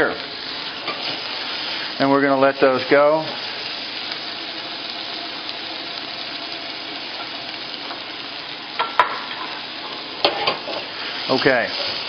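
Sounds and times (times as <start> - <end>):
vegetables sizzling in a pot: 0.0 - 12.0
knocks against a pot: 8.8 - 9.2.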